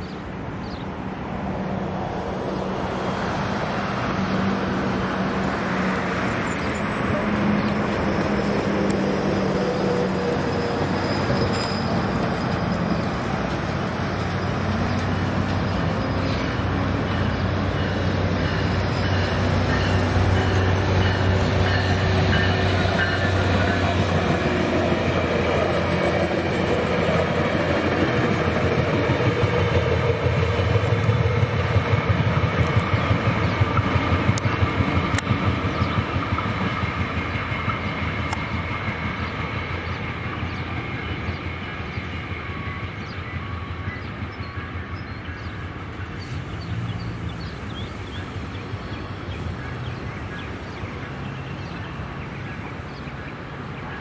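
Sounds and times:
train rumbling past: 0.0 - 54.0
train wheel clatter: 6.8 - 42.1.

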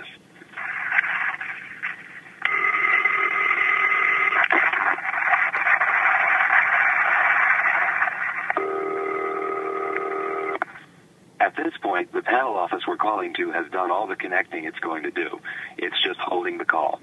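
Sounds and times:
telephone ring tone: 2.5 - 4.4, 8.6 - 10.6.

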